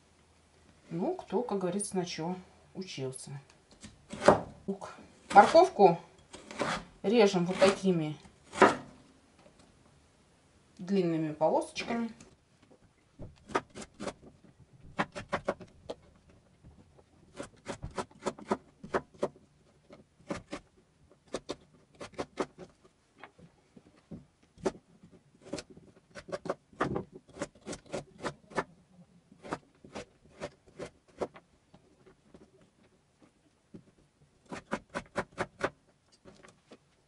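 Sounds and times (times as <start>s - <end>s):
knife chopping on wooden board: 8.5s - 8.9s.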